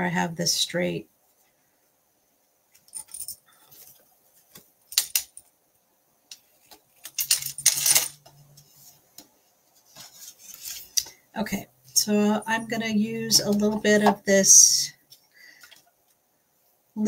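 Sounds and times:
scraping rustle: 8.5 - 11.0.

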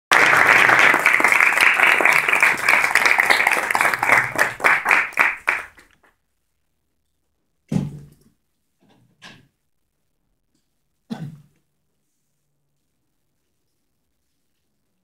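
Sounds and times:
audience applauding: 0.1 - 6.1.

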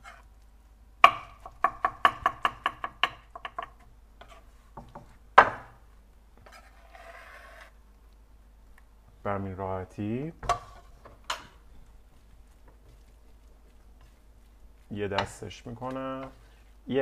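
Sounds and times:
knife scraping cutting board: 0.0 - 0.2, 4.2 - 4.5, 6.4 - 7.7.

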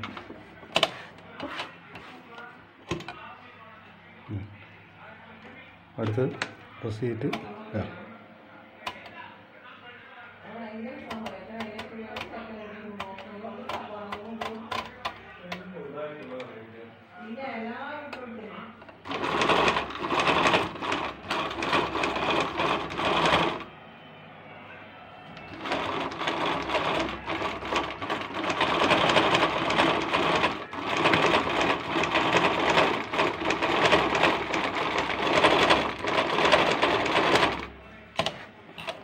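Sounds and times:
sewing machine running fast: 19.0 - 23.7, 25.5 - 37.7.

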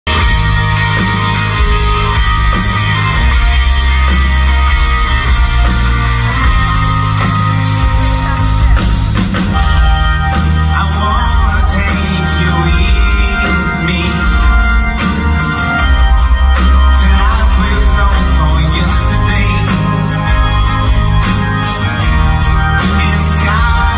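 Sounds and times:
live rock band playing: 0.0 - 23.9
singer's voice: 0.1 - 23.9.

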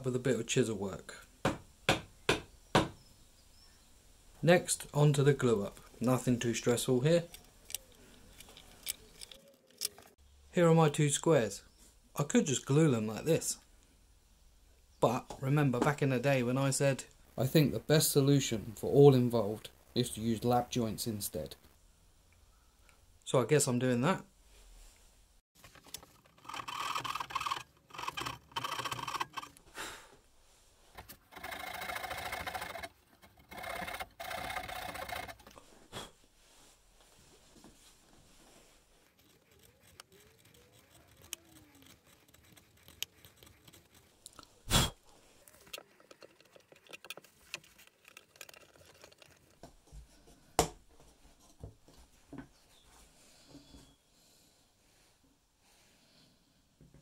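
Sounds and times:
sharp wooden knocks: 1.4 - 3.0
wooden strips handled: 25.6 - 29.7, 30.8 - 35.9, 37.0 - 53.9
hand saw scraping wood: 26.2 - 29.6, 30.9 - 35.6, 39.1 - 44.1.

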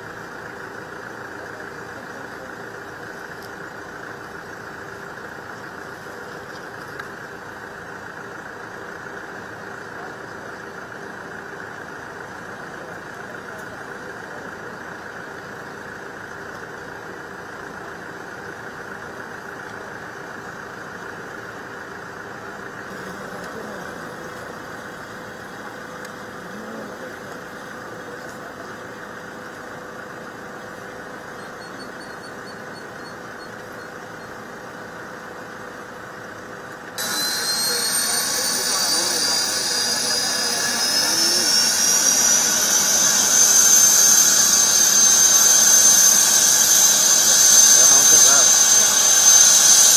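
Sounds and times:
engine drone: 0.0 - 49.9
helicopter turbine starting up: 20.6 - 49.9.

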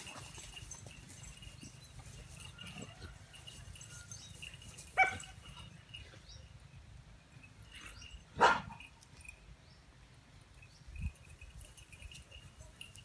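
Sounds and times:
dog barking: 5.0 - 5.3, 8.4 - 8.8.

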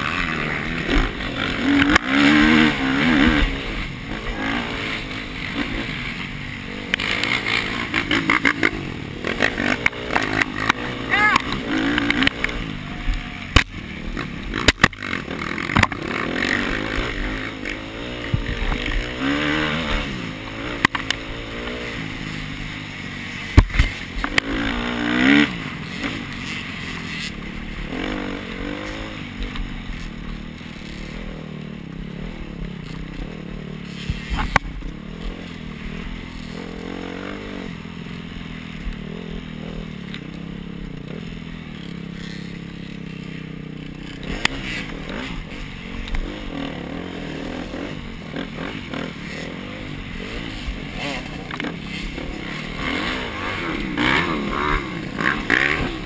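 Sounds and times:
dirt bike engine revving: 0.0 - 56.0
bike knocking on bumps: 15.6 - 16.1.

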